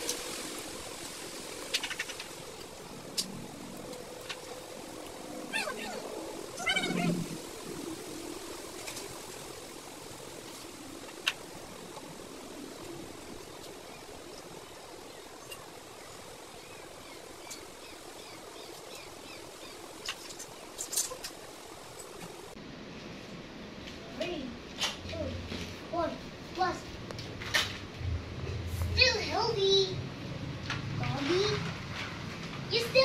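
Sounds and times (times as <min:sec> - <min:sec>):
faint chirping: 0:00.0 - 0:22.6
faint steady hiss: 0:00.0 - 0:33.0.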